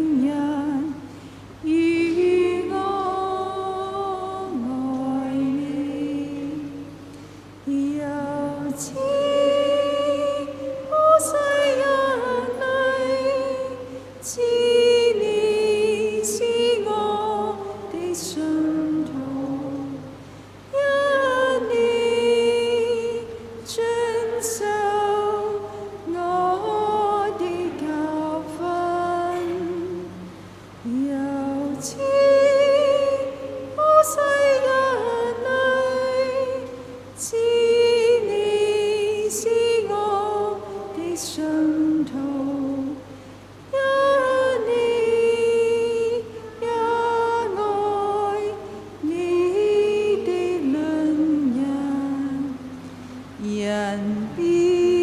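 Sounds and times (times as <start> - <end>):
hymn sung in slow held notes: 0.0 - 55.0.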